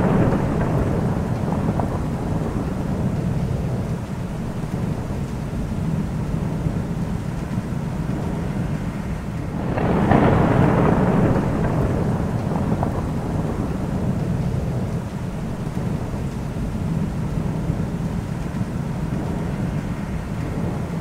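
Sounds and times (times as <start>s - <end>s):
steady rain: 0.0s - 21.0s
thunder rumbling: 0.0s - 21.0s.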